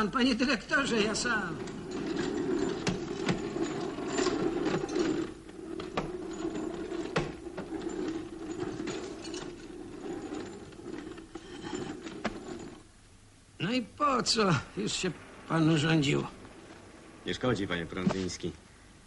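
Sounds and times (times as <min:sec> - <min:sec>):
bag being handled: 0:01.5 - 0:12.9.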